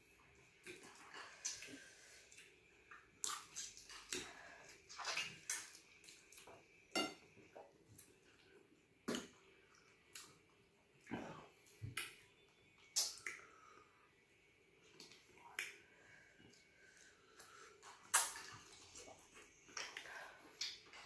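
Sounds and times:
tableware clinking: 0:07.0 - 0:07.2.

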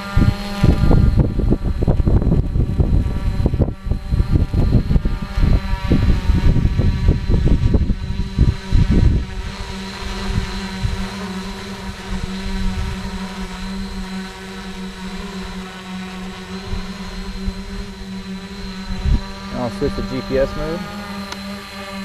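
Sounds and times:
wind gusts on microphone: 0:00.0 - 0:21.3
quadcopter propellers humming: 0:00.0 - 0:22.0.

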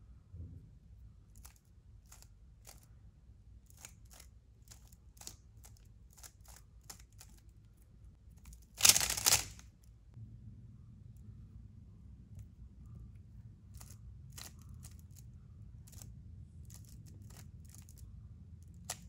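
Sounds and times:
puzzle cube clicking turns: 0:03.7 - 0:07.5, 0:08.4 - 0:09.7, 0:18.8 - 0:19.0
puzzle cube rattling: 0:03.7 - 0:07.5, 0:08.4 - 0:09.6, 0:18.7 - 0:19.0.

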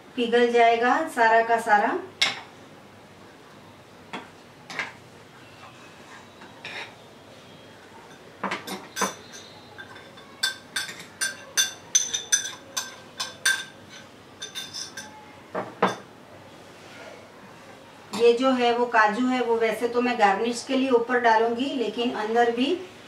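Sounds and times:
metal spoon clinking on glass bowl: 0:08.1 - 0:15.2.

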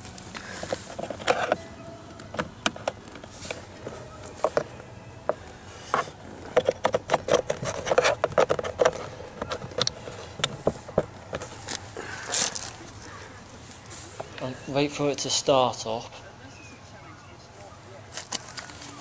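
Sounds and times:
plastic clicks and scrapes: 0:00.3 - 0:04.8, 0:05.9 - 0:12.8.

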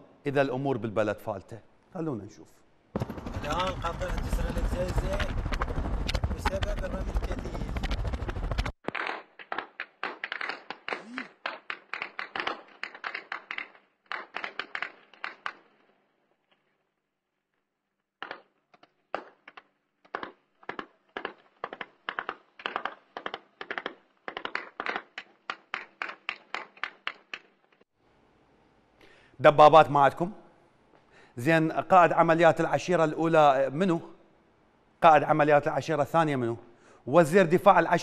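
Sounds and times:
heavy gunfire: 0:03.0 - 0:08.7.

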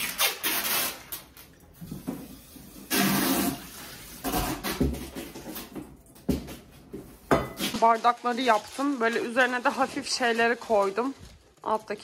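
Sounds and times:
newspaper crumpling and rustling: 0:07.6 - 0:12.0.

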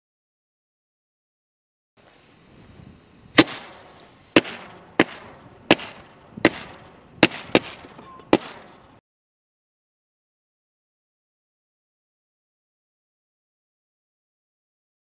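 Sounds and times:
fireworks crackling hiss: 0:02.0 - 0:08.7
fireworks banging: 0:03.3 - 0:09.0.

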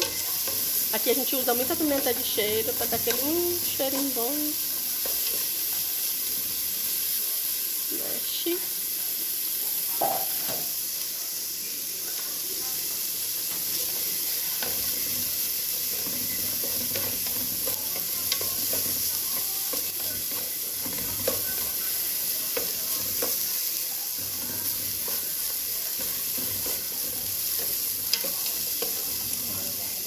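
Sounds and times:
vegetables sizzling in oil: 0:00.0 - 0:30.0
utensil scraping metal pot: 0:14.6 - 0:21.9.

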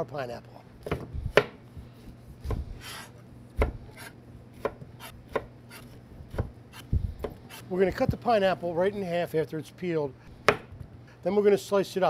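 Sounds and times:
knife slicing pineapple rind: 0:02.5 - 0:07.7.

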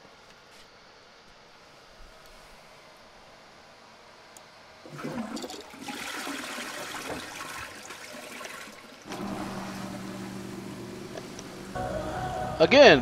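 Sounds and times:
water rushing into toilet bowl: 0:04.8 - 0:10.1
grinder pump humming: 0:09.0 - 0:13.0.

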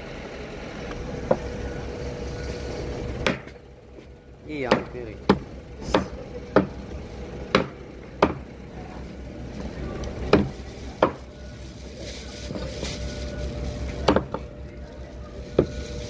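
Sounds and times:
cleaver chopping on wooden board: 0:04.7 - 0:06.7, 0:07.5 - 0:08.4.

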